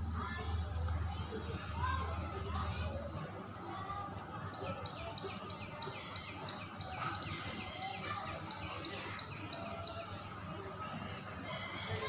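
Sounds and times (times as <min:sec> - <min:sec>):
small birds chirping: 0:04.0 - 0:12.0.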